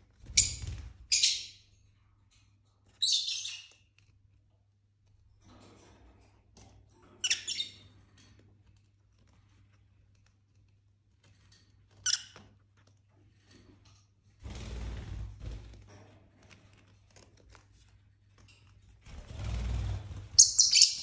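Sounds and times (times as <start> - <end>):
lovebirds chirping: 20.4 - 21.0.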